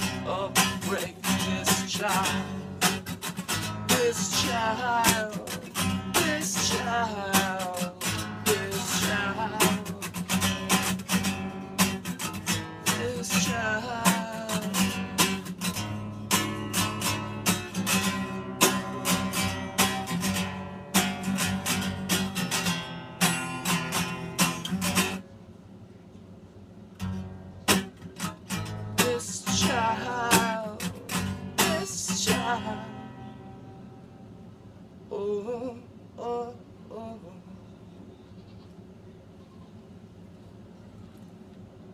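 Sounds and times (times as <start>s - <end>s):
man singing: 0.0s - 11.1s, 12.5s - 15.4s, 28.8s - 33.4s, 35.1s - 37.5s
acoustic guitar strumming: 0.0s - 25.2s, 27.0s - 34.5s.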